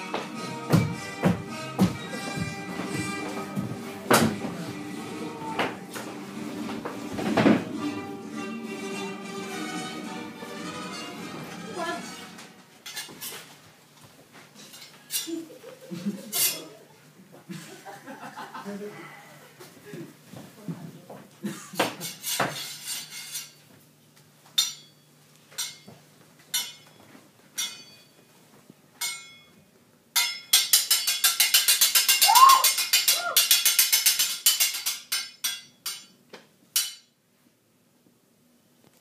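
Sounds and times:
sharp knocks and clatter: 30.2s - 36.2s
person giving rising cries: 32.2s - 33.4s.

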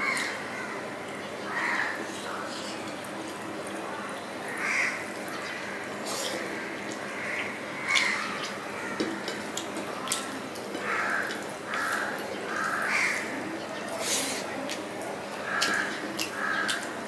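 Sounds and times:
crows cawing: 0.0s - 2.5s, 4.5s - 13.6s, 15.4s - 17.0s
wet finger-mixing of food: 0.0s - 17.0s
mouth smacks and chewing clicks: 9.5s - 12.0s, 13.9s - 17.0s.

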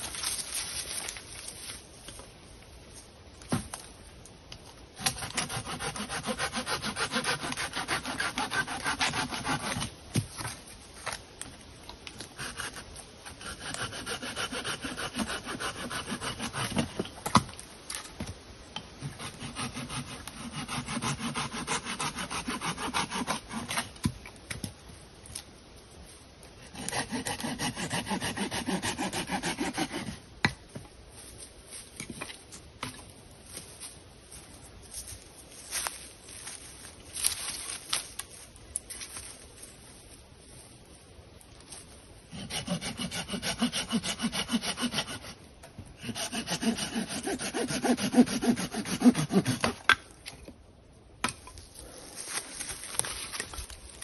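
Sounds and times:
hand saw cutting wood: 5.0s - 10.5s, 12.3s - 17.1s, 19.0s - 24.0s, 26.6s - 30.2s, 42.3s - 45.4s, 46.0s - 50.0s.

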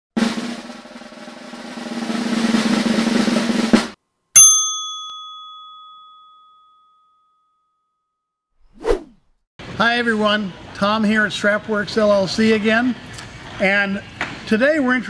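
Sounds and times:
snare drum roll: 0.2s - 4.0s
bright ringing strike: 4.4s - 7.6s.

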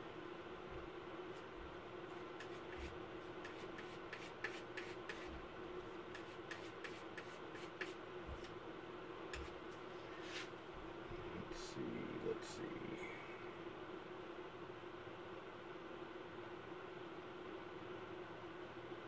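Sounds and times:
steady hum: 0.0s - 19.0s
paint tools tapping and rubbing: 2.4s - 5.4s, 6.1s - 8.5s, 9.3s - 9.6s.

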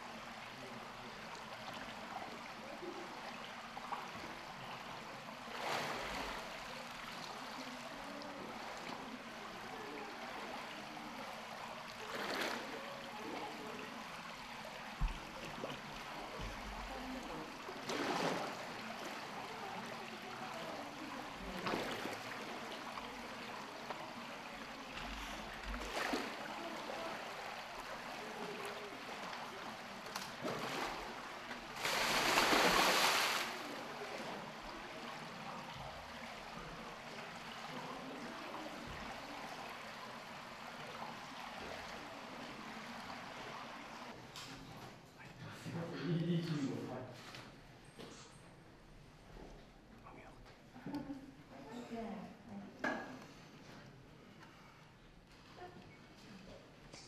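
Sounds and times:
water sloshing and lapping: 1.2s - 45.0s
short splashes: 31.7s - 33.7s.

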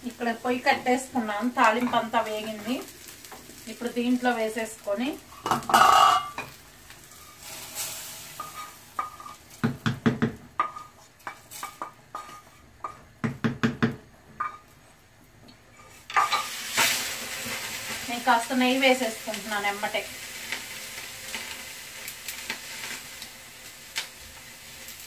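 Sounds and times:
hot oil hissing: 0.0s - 13.2s, 15.8s - 25.0s
metal pot lid clanking: 5.5s - 6.5s
spoon knocking frying pan: 8.4s - 14.7s.

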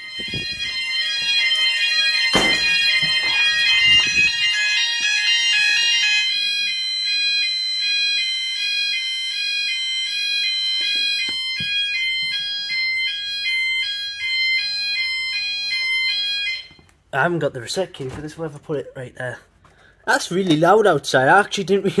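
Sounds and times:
alarm tone stepping between pitches: 0.0s - 16.8s
steady high alarm tone: 0.0s - 16.9s.

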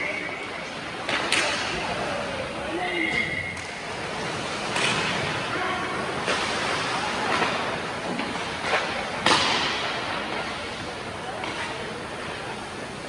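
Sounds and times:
noisy rink background: 0.0s - 13.0s
hockey sticks and puck cracking: 0.6s - 2.0s, 3.1s - 5.5s, 6.2s - 12.4s.

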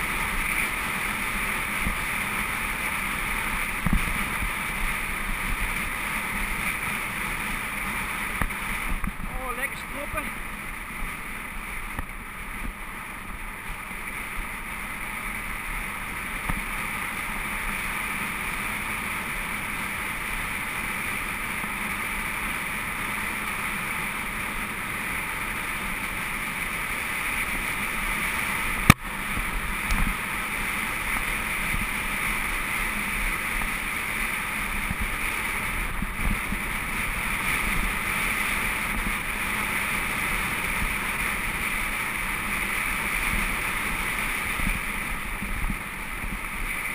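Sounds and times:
bike tyres rolling over gravel: 0.0s - 46.9s
wind on microphone: 31.1s - 46.9s.

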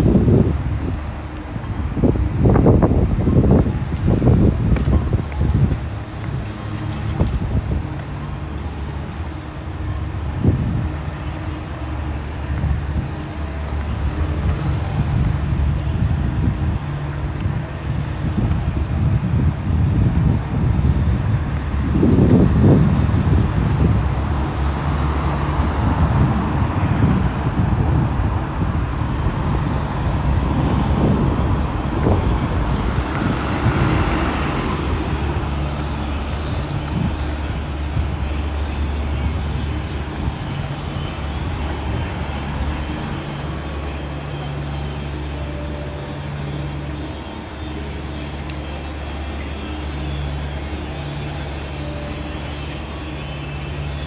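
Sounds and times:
vehicle passing: 22.6s - 46.9s.

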